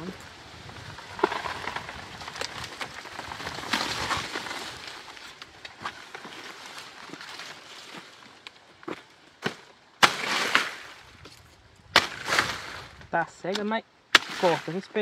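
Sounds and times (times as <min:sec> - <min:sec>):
plant material rustling and crackling: 0:00.0 - 0:09.7.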